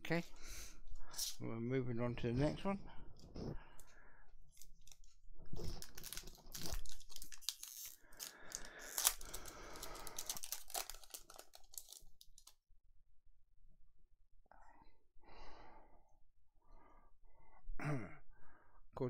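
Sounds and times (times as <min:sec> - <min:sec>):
wrapper crinkling and tearing: 0:04.6 - 0:12.5.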